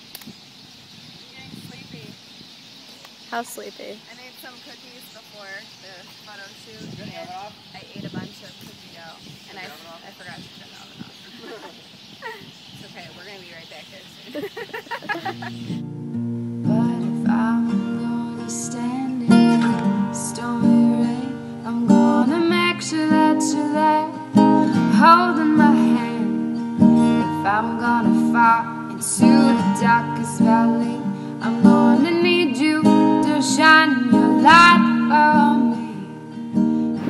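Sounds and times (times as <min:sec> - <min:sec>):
acoustic guitar strumming: 0:15.0 - 0:37.0.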